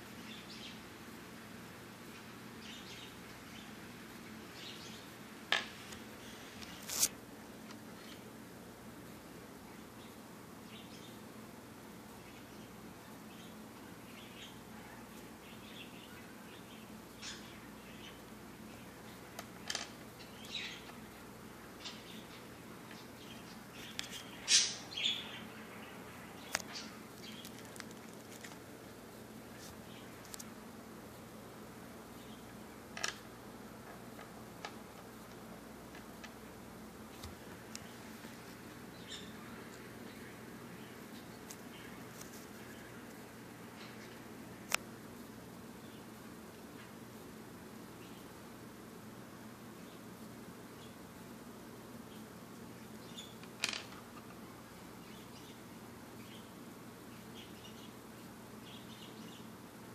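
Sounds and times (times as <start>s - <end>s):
parakeet chirping: 20.2s - 21.0s, 23.2s - 27.5s.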